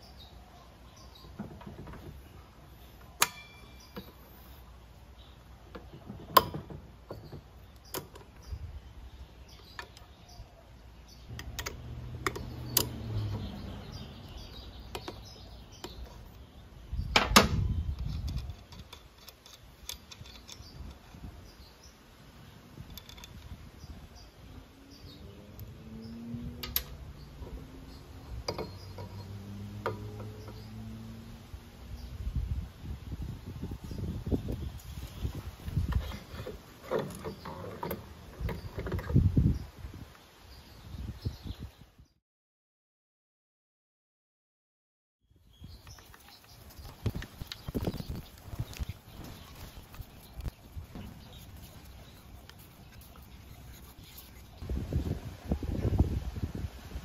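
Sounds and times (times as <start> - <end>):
metal tool clicks and clanks: 18.0 - 21.0.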